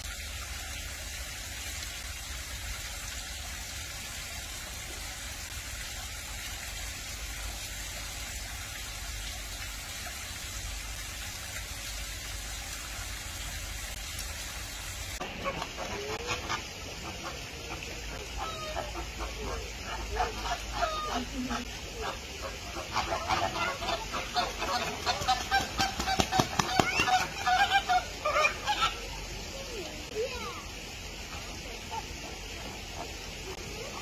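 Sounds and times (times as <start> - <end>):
steady hiss: 0.0 - 25.6, 27.2 - 34.0
flamingos honking: 15.2 - 29.2.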